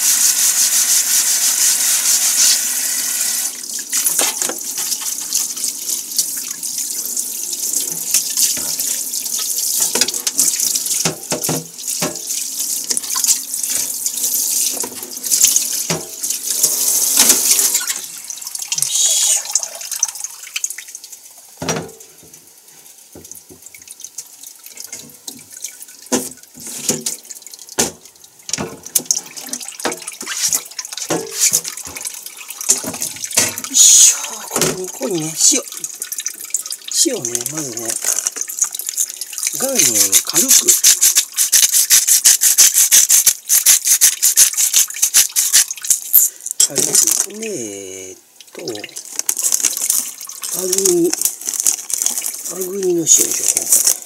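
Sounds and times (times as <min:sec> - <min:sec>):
items clinking against sink: 0:04.0 - 0:05.6, 0:07.9 - 0:09.0, 0:09.8 - 0:14.0, 0:21.6 - 0:22.4, 0:24.8 - 0:33.8, 0:34.5 - 0:35.9
tap running into sink: 0:09.8 - 0:14.0, 0:26.1 - 0:33.7, 0:34.5 - 0:34.9
water splashing: 0:24.7 - 0:42.9, 0:43.8 - 0:54.0.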